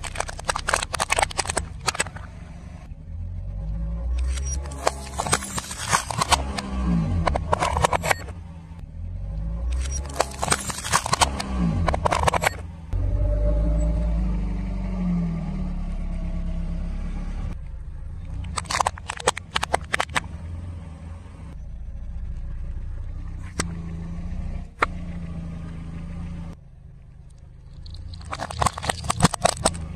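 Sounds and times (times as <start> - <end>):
plastic cracking and crunching: 0.0 - 2.3, 10.1 - 12.4, 18.4 - 20.2, 27.3 - 29.9
sharp plastic cracks: 0.0 - 2.3, 9.8 - 12.6, 18.4 - 20.3, 27.3 - 29.9
car engine running: 0.0 - 29.9.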